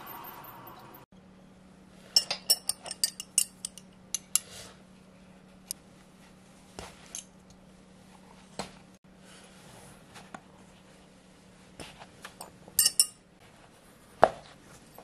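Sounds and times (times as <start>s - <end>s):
nippers clinking on metal plate: 2.2s - 4.5s, 12.8s - 13.1s.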